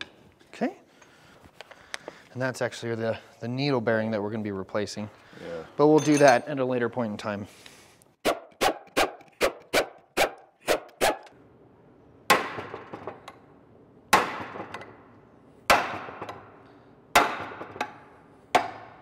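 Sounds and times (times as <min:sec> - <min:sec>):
hammer striking pry bar: 0:15.7 - 0:16.4, 0:17.2 - 0:19.0.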